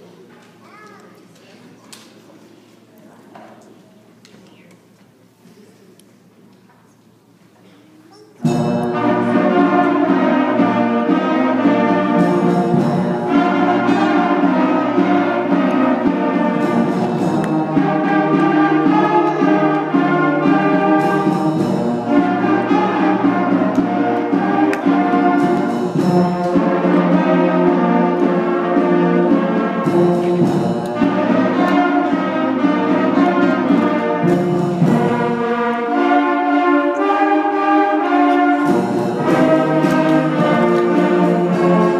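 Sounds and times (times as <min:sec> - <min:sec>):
concert band playing: 0:08.4 - 0:41.9
tuba bass line: 0:08.4 - 0:41.9.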